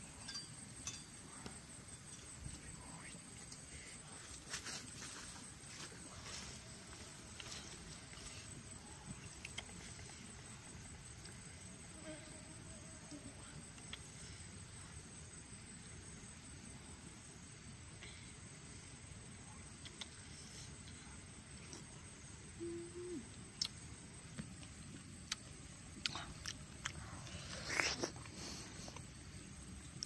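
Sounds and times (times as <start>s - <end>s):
quiet outdoor background: 0.0s - 30.0s
wet bite into fruit: 25.2s - 28.4s.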